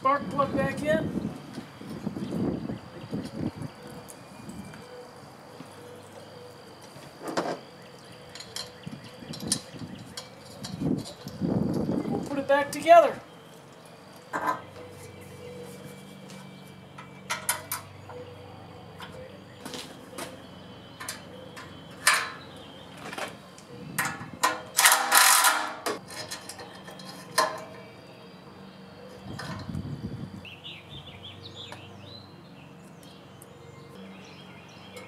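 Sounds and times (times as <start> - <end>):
metal tools clinking: 8.3 - 11.4, 21.0 - 22.5, 23.9 - 27.9.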